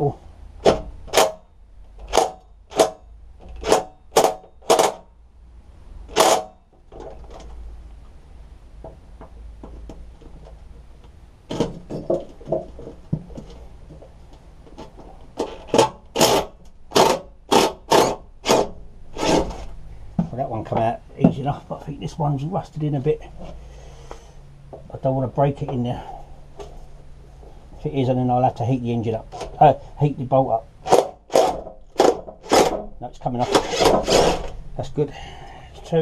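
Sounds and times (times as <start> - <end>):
impact driver bursts: 0.6 - 1.4, 2.0 - 3.0, 3.6 - 5.1, 6.1 - 6.6, 15.4 - 19.6, 30.8 - 32.8.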